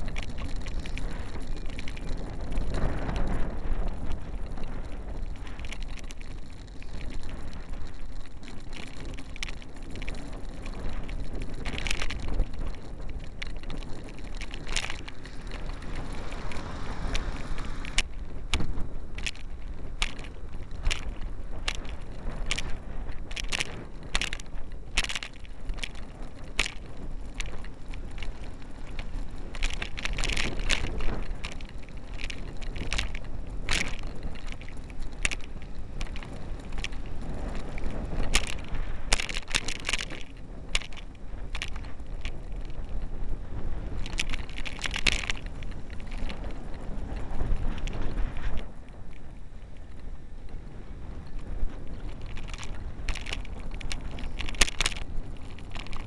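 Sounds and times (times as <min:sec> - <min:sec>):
camera rattling in its mount: 0:00.0 - 0:50.6, 0:51.2 - 0:56.0
car road and engine rumble: 0:04.2 - 0:22.6.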